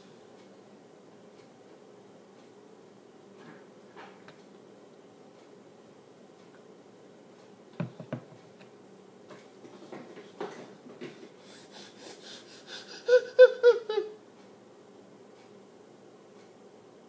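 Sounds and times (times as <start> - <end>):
boy huffing and gasping: 11.4 - 14.1
boy crying out: 12.7 - 14.2.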